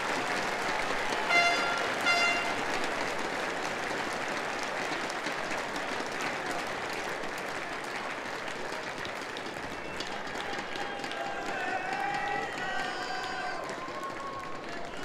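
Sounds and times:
crowd applauding: 0:00.0 - 0:15.0
short horn-like tone: 0:01.3 - 0:02.6.

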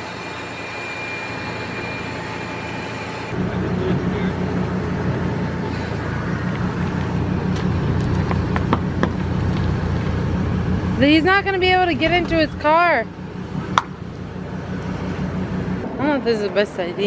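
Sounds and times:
truck engine running: 0:00.0 - 0:17.0.

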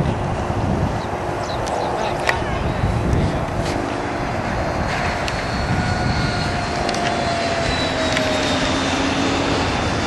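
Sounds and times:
model plane engine droning: 0:00.0 - 0:10.0.

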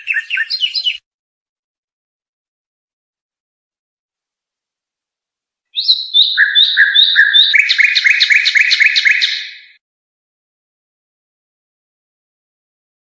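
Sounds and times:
songbird chirping: 0:00.0 - 0:01.0, 0:05.7 - 0:09.8.

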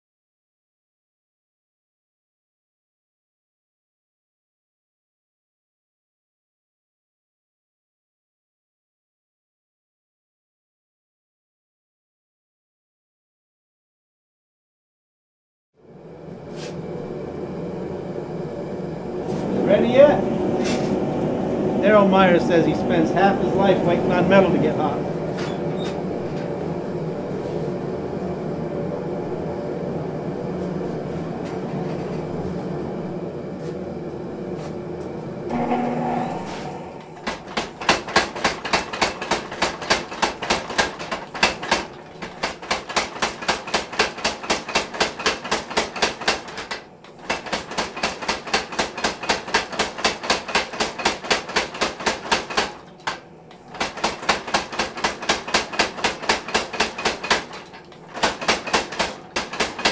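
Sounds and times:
power hammer pounding steel: 0:35.5 - 0:59.9.

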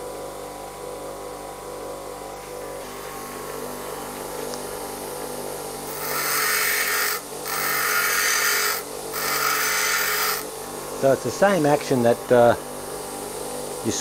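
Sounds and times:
bench grinder running: 0:02.8 - 0:14.0
tool bit grinding hiss: 0:05.8 - 0:14.0.

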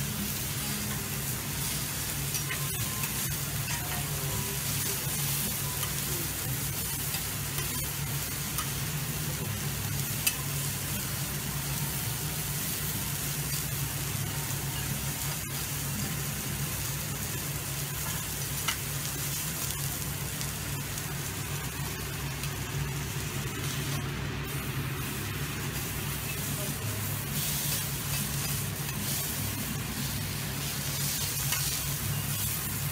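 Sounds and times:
steak sizzling on a griddle: 0:00.0 - 0:32.9
utensils clicking on griddle: 0:10.2 - 0:10.5, 0:27.4 - 0:32.8.

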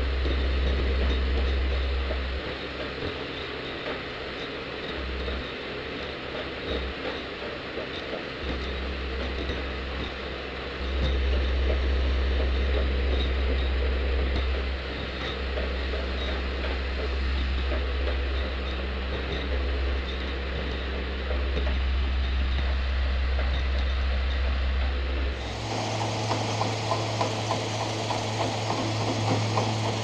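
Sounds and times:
machine low hum: 0:10.7 - 0:30.0
machine hiss: 0:25.3 - 0:30.0.

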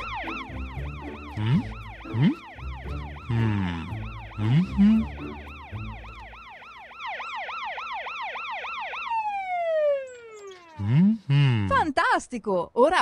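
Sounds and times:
low rising tones: 0:00.0 - 0:07.0
cartoon police siren yelping: 0:00.0 - 0:10.9.

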